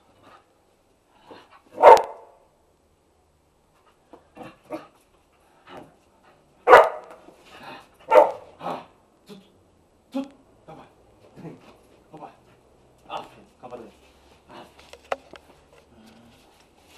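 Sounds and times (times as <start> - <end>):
dog barking: 1.8 - 2.3, 6.7 - 7.2, 8.1 - 8.5.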